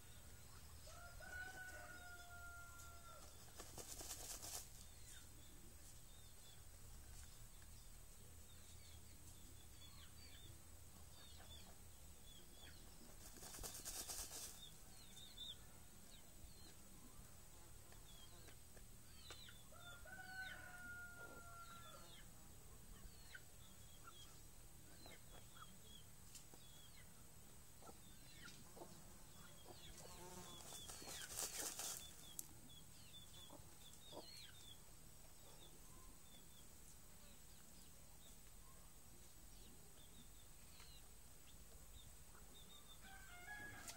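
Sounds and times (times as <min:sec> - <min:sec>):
rustling and wing flapping: 0:03.2 - 0:04.8, 0:13.1 - 0:14.7, 0:30.5 - 0:32.2.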